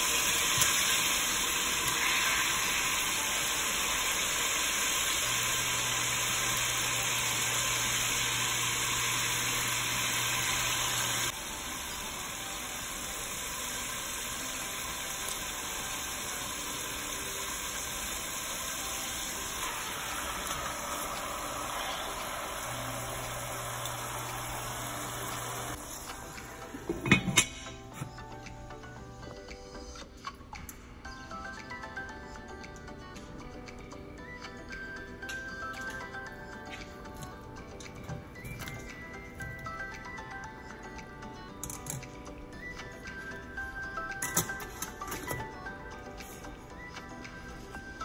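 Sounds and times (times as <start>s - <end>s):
broth simmering hiss: 0.0s - 27.8s.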